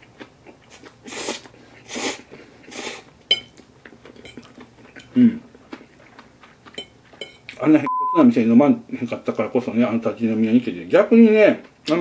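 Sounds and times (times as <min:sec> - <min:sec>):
fork clinking on plate: 0:03.3 - 0:03.5, 0:06.8 - 0:07.5.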